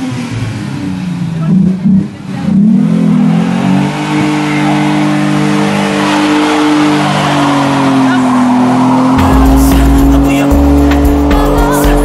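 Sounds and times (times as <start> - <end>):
engine revving high: 0.0 - 12.0.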